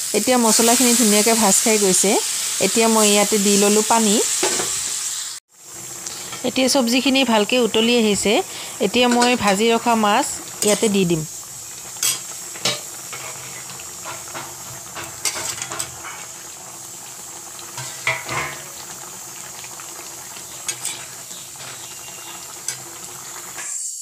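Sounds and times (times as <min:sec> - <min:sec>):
curry bubbling and hissing: 0:04.8 - 0:24.0
metal spatula scraping a pot: 0:12.0 - 0:16.4, 0:17.8 - 0:18.7, 0:20.6 - 0:23.9.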